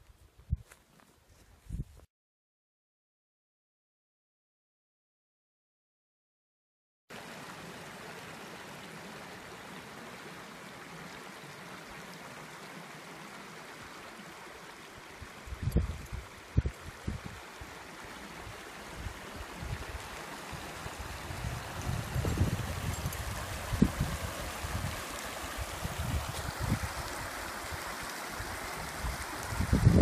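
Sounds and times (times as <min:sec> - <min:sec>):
mountain stream rushing: 0:07.1 - 0:30.0.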